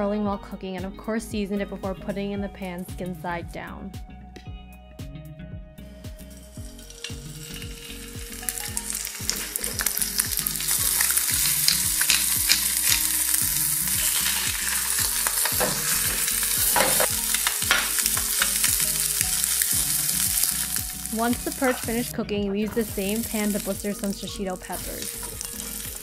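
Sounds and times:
fish sizzling in oil: 0:06.3 - 0:22.1, 0:22.7 - 0:26.0
oil popping and crackling: 0:06.4 - 0:26.0.

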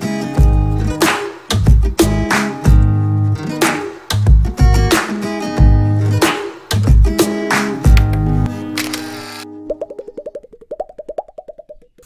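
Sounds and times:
guitar music with heavy bass: 0:00.0 - 0:08.8.

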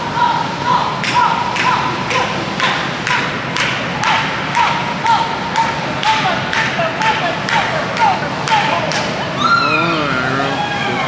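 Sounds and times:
rhythmic hand clapping: 0:01.0 - 0:09.2.

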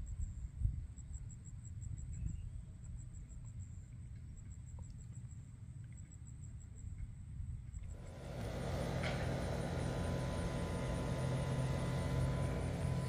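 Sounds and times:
motor humming: 0:07.9 - 0:13.0.

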